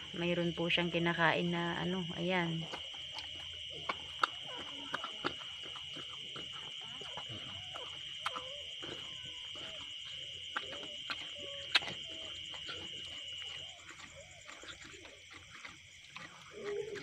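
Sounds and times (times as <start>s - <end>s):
night insects trilling: 0.0s - 17.0s
newborn puppies squeaking: 6.8s - 9.5s.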